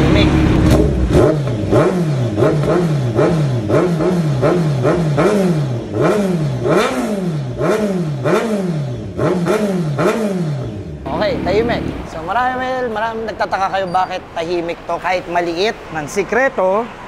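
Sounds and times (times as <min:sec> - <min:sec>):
motorcycle engine revving: 0:00.0 - 0:12.3.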